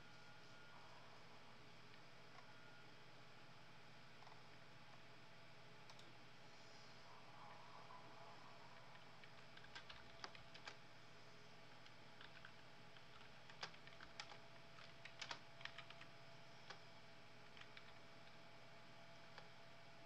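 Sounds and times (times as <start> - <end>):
typing on computer keyboard: 8.9 - 10.8, 11.8 - 16.1, 17.5 - 18.0.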